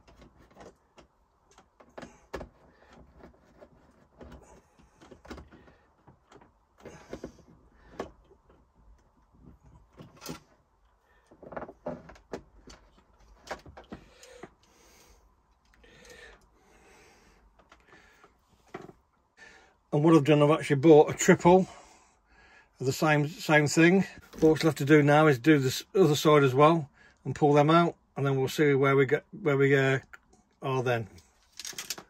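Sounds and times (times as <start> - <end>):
clicks knocks and scrapes of handling: 0.0 - 16.5, 17.4 - 19.1, 31.2 - 32.0.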